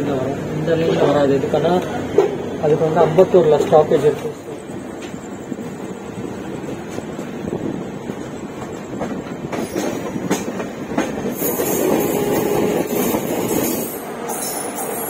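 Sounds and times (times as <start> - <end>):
train wheels clattering on rails: 0.8 - 15.0.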